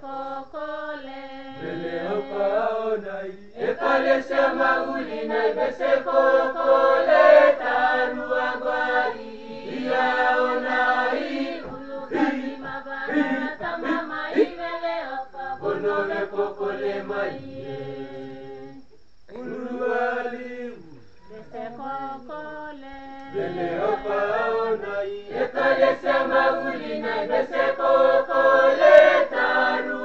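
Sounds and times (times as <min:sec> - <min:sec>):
choir singing a hymn unaccompanied: 0:00.0 - 0:30.0.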